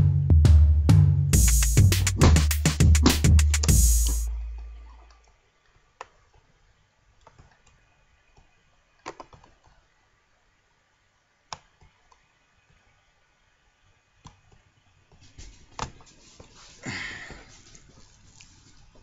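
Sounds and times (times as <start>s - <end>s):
hip-hop beat with deep bass: 0.0s - 4.9s.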